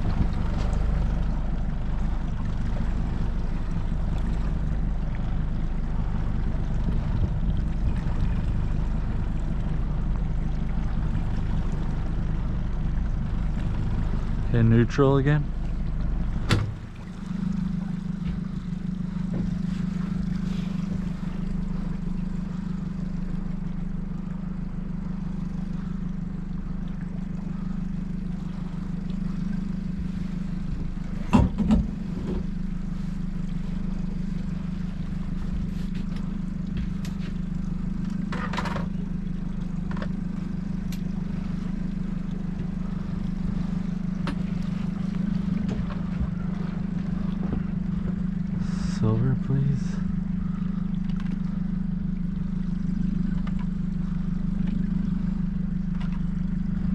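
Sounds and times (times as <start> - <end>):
outboard motor idling: 0.0 - 56.9.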